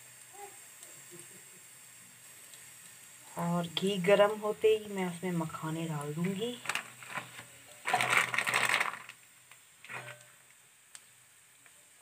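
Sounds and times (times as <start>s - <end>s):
plastic packet rustling: 6.2s - 10.2s.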